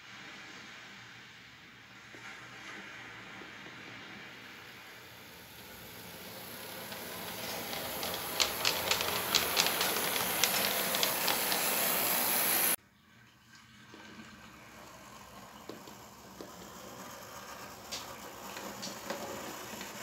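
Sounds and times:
model tram hissing along track: 0:02.8 - 0:12.8, 0:14.4 - 0:20.0
wheels clicking over rail joints: 0:05.4 - 0:12.8, 0:15.6 - 0:20.0.

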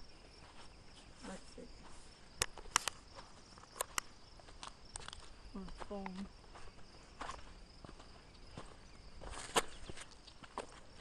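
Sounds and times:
footsteps crunching over debris: 0:00.1 - 0:11.0
scattered clicks: 0:03.7 - 0:05.2.

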